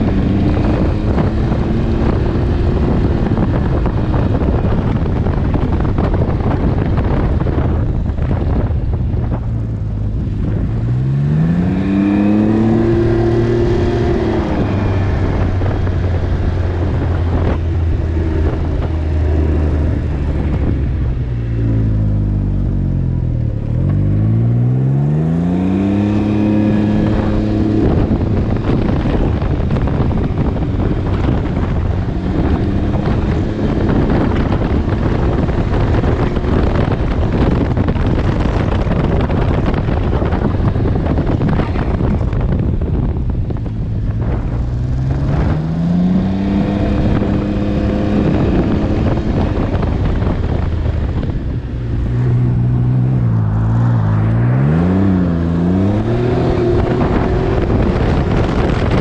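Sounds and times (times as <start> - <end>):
motorcycle engine running: 0.0 - 53.7, 55.1 - 59.0
wind noise on microphone: 0.0 - 59.0.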